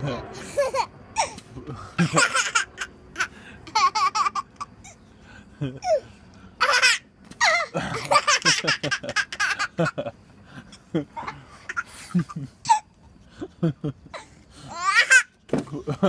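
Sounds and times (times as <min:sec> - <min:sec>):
baby laughing: 0:00.4 - 0:05.0, 0:05.8 - 0:10.0, 0:11.0 - 0:12.9, 0:14.1 - 0:15.3.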